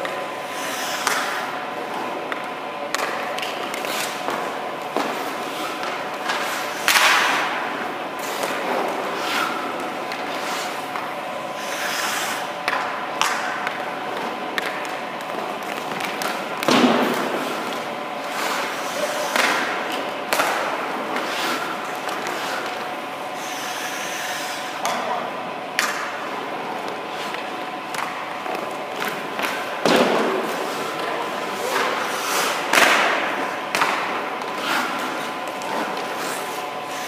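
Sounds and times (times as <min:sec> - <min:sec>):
steady hum: 0:00.0 - 0:37.0
skate blades scraping ice: 0:00.4 - 0:01.4, 0:03.0 - 0:07.5, 0:08.2 - 0:10.9, 0:11.6 - 0:12.5, 0:17.0 - 0:19.8, 0:20.4 - 0:22.8, 0:29.0 - 0:37.0
goalie pads thudding: 0:12.6 - 0:17.9, 0:27.4 - 0:31.1.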